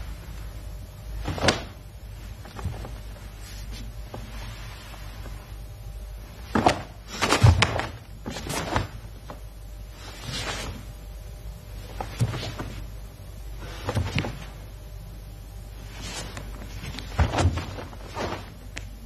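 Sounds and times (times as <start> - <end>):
fabric snapping: 1.2 - 1.8
bare feet stamping on a mat: 16.4 - 18.8.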